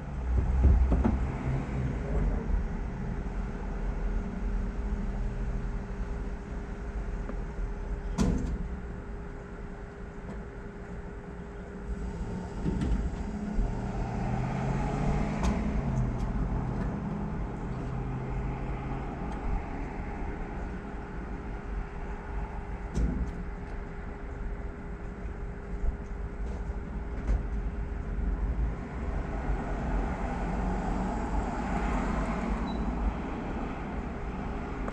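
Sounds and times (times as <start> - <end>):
vehicle engine humming: 0.0 - 34.9.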